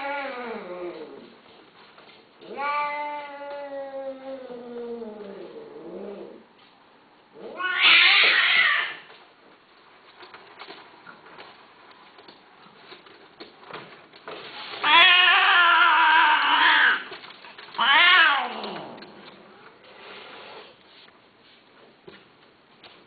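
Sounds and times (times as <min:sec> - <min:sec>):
cats yowling: 0:07.4 - 0:09.1, 0:14.8 - 0:19.0.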